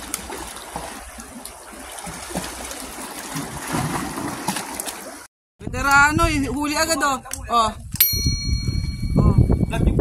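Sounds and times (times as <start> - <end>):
seawater washing among rocks: 0.0 - 5.3.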